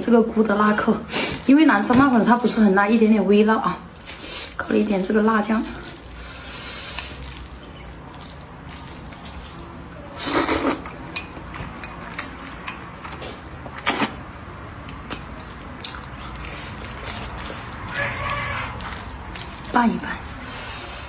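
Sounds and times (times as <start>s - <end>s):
person slurping noodles: 10.0s - 10.9s
chewing mouth clicks: 14.8s - 19.8s.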